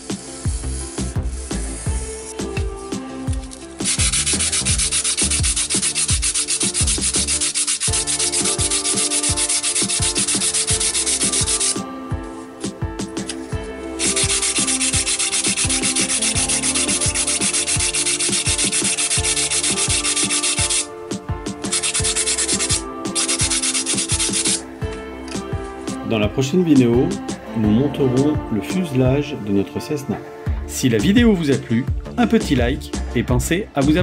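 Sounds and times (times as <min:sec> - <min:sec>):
sanding block rasping on foam: 0:03.9 - 0:11.8, 0:14.0 - 0:20.9, 0:21.7 - 0:24.6.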